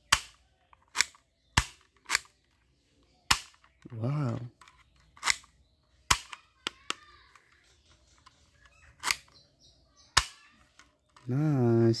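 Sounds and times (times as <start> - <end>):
toy revolver loud snaps: 0.0 - 2.3, 3.3 - 3.7
toy revolver clicks: 0.0 - 2.4, 5.2 - 7.0, 9.0 - 9.4.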